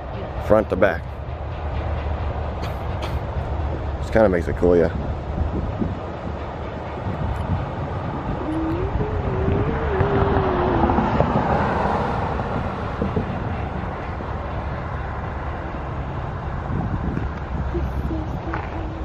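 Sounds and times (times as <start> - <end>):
freight train rumbling on rails: 0.0 - 19.0
wavering tone: 8.0 - 11.5.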